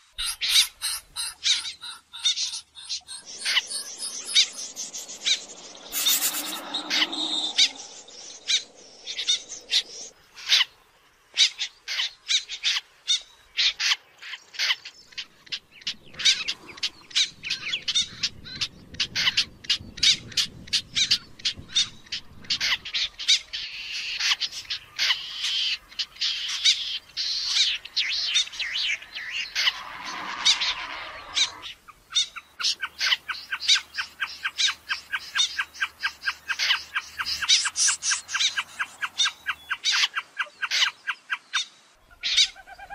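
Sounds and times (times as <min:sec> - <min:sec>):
snipe calling sharp calls: 0:00.2 - 0:10.7.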